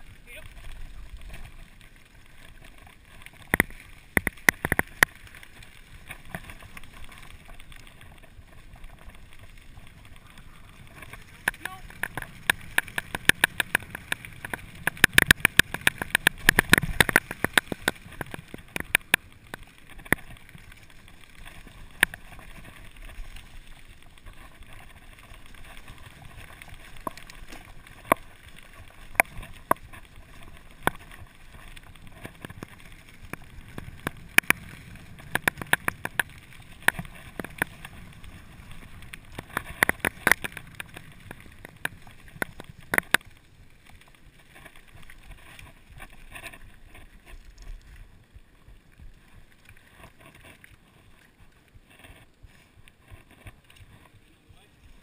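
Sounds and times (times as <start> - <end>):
bike rattling over bumps: 0.0 - 55.0
bike tyres rumbling on gravel: 0.0 - 55.0.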